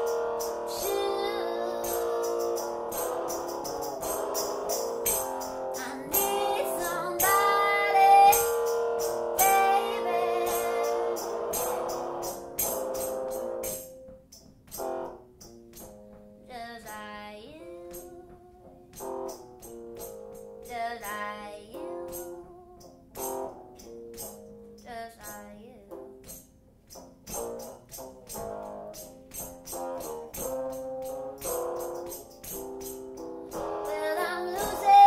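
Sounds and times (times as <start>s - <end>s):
sharp percussive hits: 0.0s - 16.2s, 26.2s - 35.0s.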